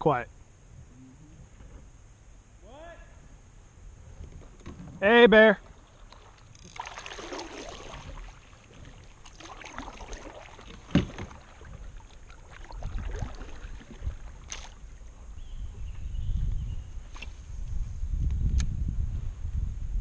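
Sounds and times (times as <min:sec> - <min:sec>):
paddle splashing in water: 0:05.6 - 0:15.4.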